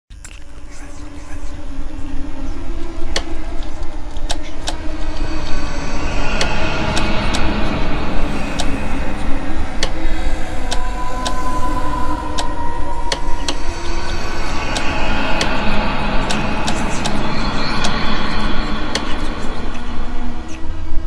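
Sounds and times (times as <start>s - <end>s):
deep rumbling drone: 0.1s - 21.0s
thin steady tone: 0.5s - 21.0s.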